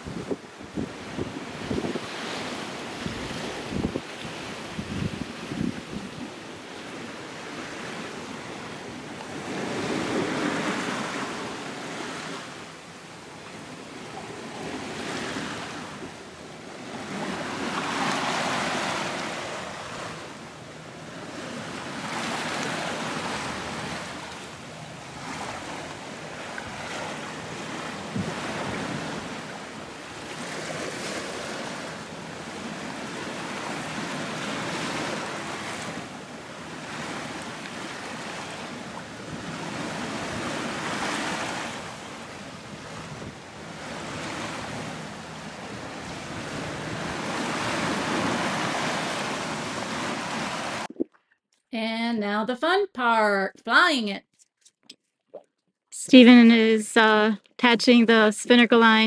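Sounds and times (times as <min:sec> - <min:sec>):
wind buffeting microphone: 0:00.0 - 0:06.4, 0:26.5 - 0:29.3, 0:42.6 - 0:45.0
sea water rushing along hulls: 0:00.0 - 0:51.2.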